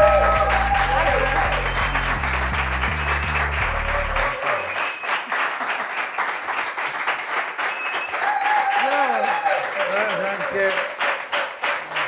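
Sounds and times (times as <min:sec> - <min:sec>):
music with low bass line: 0:00.0 - 0:04.3
audience applauding: 0:00.0 - 0:12.0.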